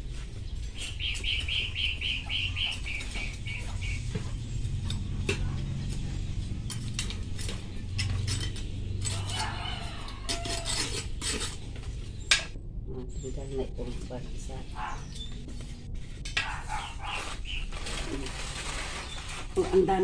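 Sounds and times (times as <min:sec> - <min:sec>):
high chirping: 0:00.6 - 0:04.6
hand scoop scraping soil: 0:02.2 - 0:12.2, 0:16.6 - 0:20.0.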